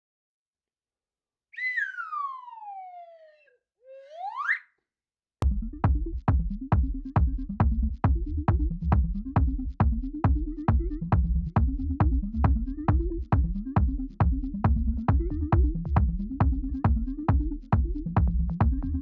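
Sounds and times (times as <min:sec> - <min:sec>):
electronic music with driving beat: 0:05.4 - 0:19.0.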